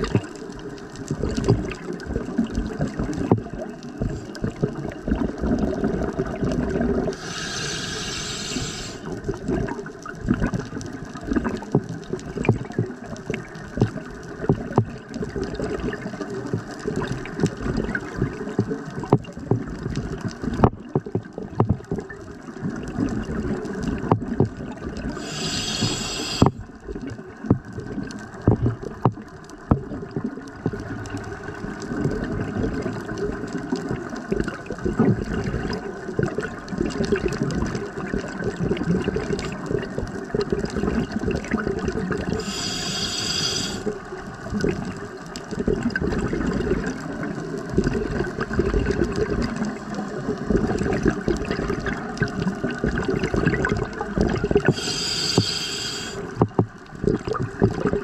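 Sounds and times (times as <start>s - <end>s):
exhaled bubbles gurgling underwater: 0.0s - 58.0s
hissing inhalation through regulator: 7.1s - 9.3s, 25.1s - 26.6s, 42.3s - 44.0s, 54.6s - 56.5s.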